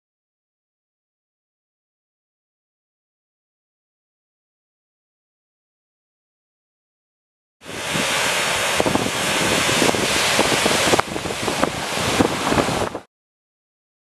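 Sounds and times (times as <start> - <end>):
water rushing through dam gates: 7.6 - 13.1
wind buffeting microphone: 7.6 - 13.1.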